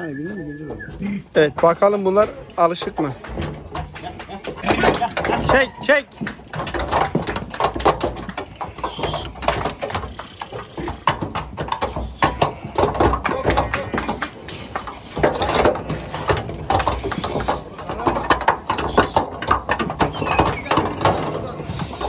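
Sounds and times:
sheep hooves clattering on ramp: 0.0s - 22.0s.

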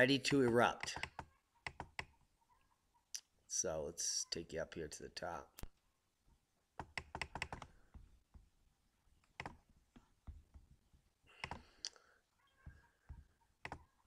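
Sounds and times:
computer mouse clicking: 0.8s - 2.1s, 6.8s - 7.7s, 9.2s - 9.6s, 11.4s - 12.0s, 13.6s - 13.9s.

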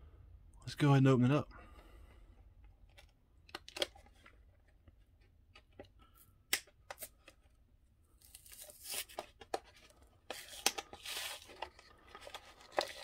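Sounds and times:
plastic clicks and crackles: 2.8s - 4.4s
plastic tearing and crinkling: 8.2s - 9.5s, 10.3s - 13.0s.

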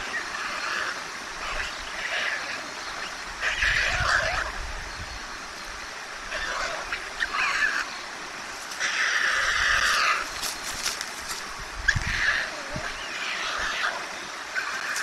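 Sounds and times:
wings flapping: 9.8s - 11.5s.

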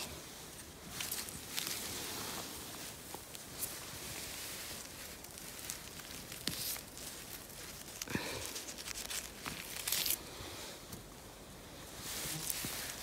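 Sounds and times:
scattered crackles: 0.0s - 10.2s
hand rustling through moss and grass: 0.0s - 13.0s.

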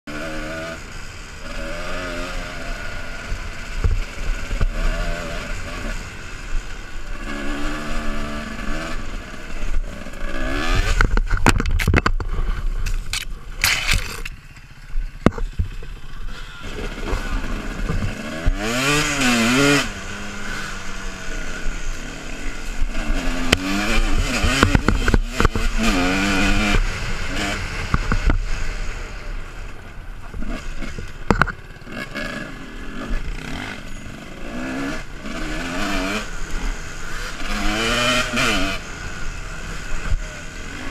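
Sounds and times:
dirt bike engine revving: 0.1s - 40.9s.

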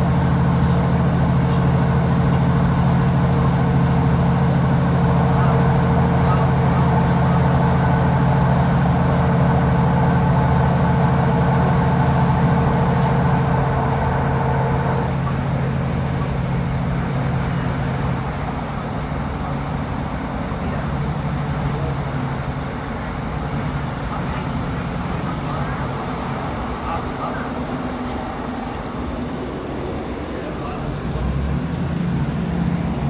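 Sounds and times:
diesel engine drone: 0.0s - 33.0s.

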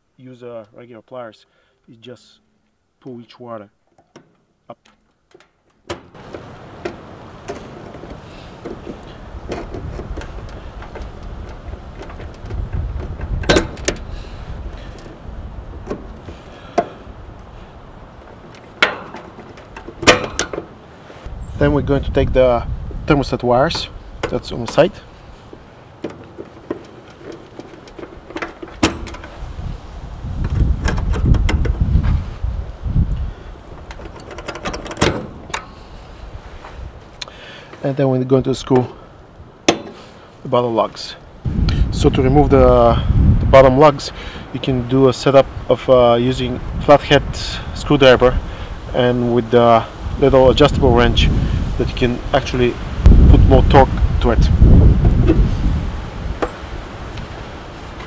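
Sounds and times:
metal clatter: 4.0s - 14.1s, 18.2s - 20.8s, 26.0s - 29.4s
steady low rumble: 41.2s - 43.8s, 49.9s - 57.3s.

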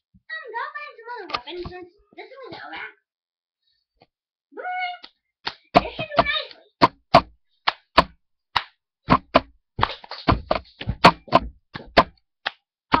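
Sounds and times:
sharp knocks and thumps: 5.8s - 12.2s.

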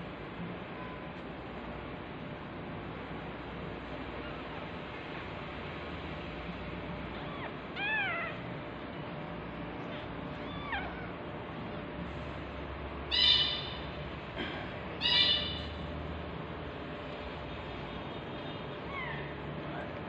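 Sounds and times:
cat meowing: 7.2s - 8.5s, 10.3s - 11.2s.

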